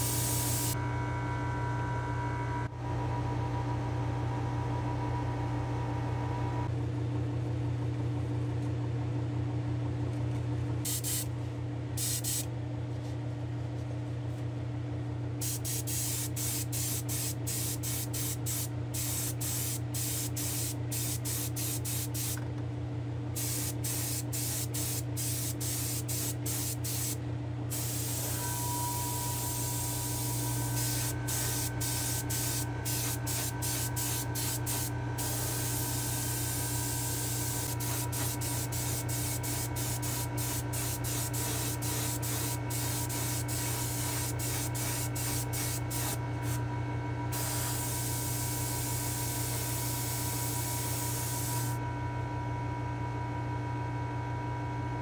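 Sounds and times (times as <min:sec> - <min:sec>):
airbrush spraying hiss: 0:00.0 - 0:00.8, 0:10.9 - 0:11.3, 0:12.0 - 0:12.5, 0:15.4 - 0:22.4, 0:23.4 - 0:28.5, 0:29.3 - 0:46.6, 0:47.4 - 0:51.8
low hum: 0:23.4 - 0:50.0.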